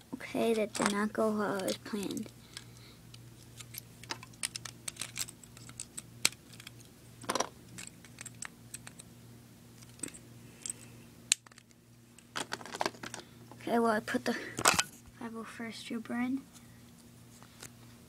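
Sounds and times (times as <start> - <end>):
plastic bricks clicking: 3.7 - 9.1.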